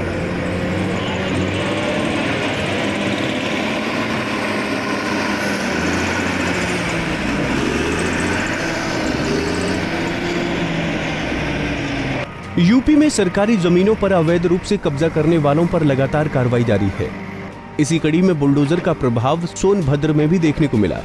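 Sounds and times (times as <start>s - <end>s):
diesel engine revving: 0.0s - 21.0s.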